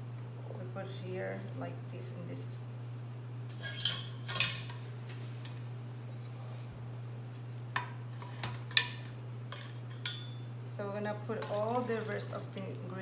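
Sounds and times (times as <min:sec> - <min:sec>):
metal pot and strainer clanking: 0:03.5 - 0:04.8.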